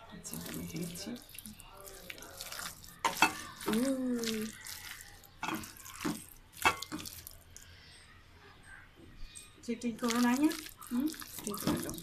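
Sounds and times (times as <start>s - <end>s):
hand squelching wet food: 0.3s - 7.8s, 10.0s - 12.0s.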